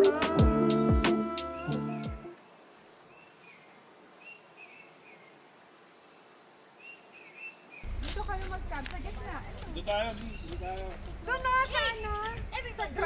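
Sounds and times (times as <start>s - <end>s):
music track: 0.0s - 2.4s
small birds chirping: 0.7s - 13.0s.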